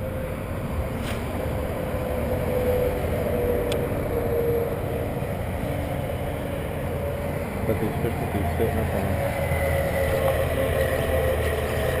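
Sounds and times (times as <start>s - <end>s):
faint wavering hum: 0.0s - 12.0s.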